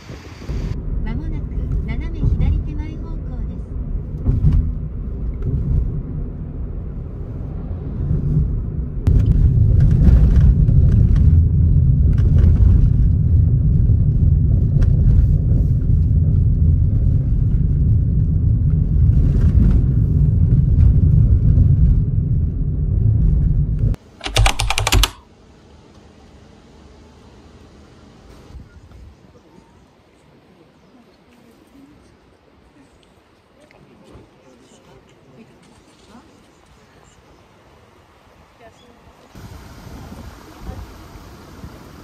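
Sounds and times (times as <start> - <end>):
car driving rumble: 0.4 - 24.0.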